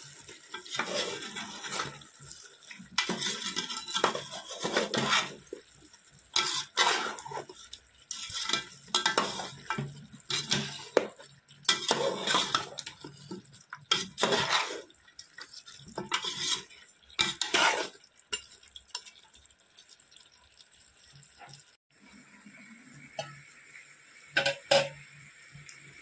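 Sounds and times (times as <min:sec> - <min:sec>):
water boiling in a pot: 0:00.0 - 0:26.0
metal ladle scraping a pot: 0:00.5 - 0:02.0, 0:03.0 - 0:05.4, 0:06.4 - 0:11.1, 0:11.7 - 0:13.2, 0:13.9 - 0:14.9, 0:16.0 - 0:18.4.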